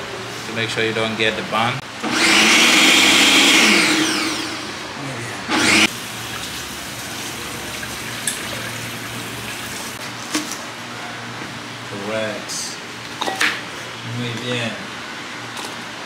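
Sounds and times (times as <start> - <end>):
blender motor: 2.0 - 4.9, 5.5 - 5.9
tap water running into colander: 5.9 - 10.0.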